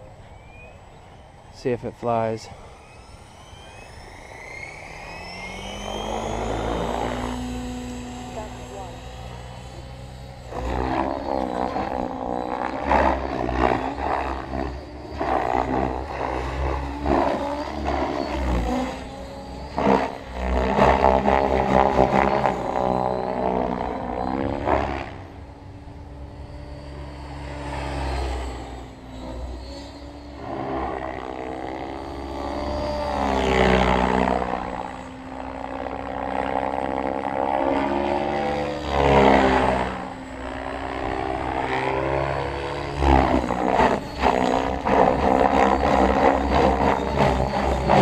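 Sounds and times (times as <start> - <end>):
rc helicopter motor whine: 0.0 - 48.0.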